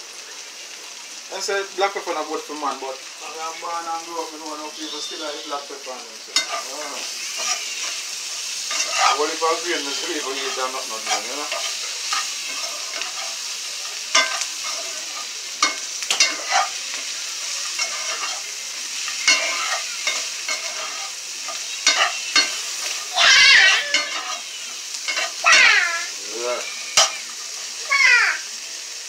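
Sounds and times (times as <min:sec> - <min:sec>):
chicken sizzling in oil: 0:00.0 - 0:29.0
metal spoon scraping a pan: 0:06.3 - 0:25.5, 0:26.6 - 0:27.5.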